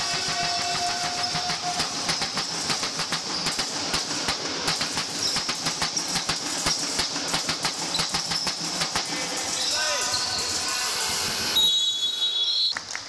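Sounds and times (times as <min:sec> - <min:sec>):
basketball dribbling: 0:00.0 - 0:09.0.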